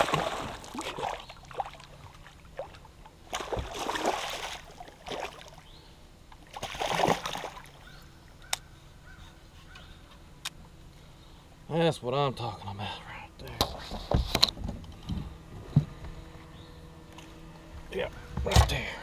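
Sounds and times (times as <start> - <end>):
low steady hum: 0.0 - 19.0
fish splashing at water surface: 2.6 - 5.6, 6.5 - 7.8.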